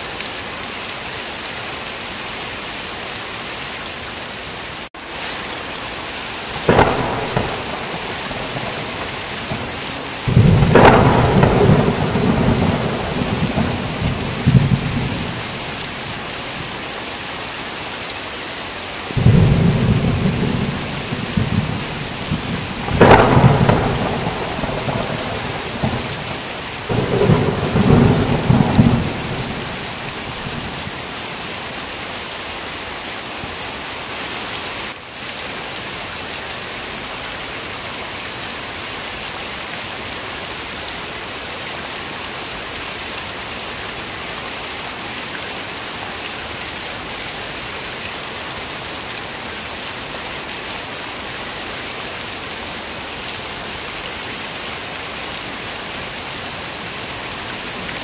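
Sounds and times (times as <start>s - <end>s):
heavy rain: 0.0s - 58.0s
thunderclap: 6.6s - 16.3s, 19.2s - 31.1s
thunder rumbling: 6.6s - 16.7s, 19.2s - 31.2s.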